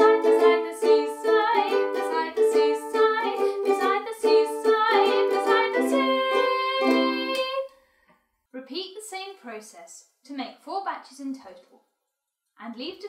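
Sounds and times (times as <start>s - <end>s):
ukulele strumming: 0.0s - 7.6s
woman singing: 0.0s - 7.7s.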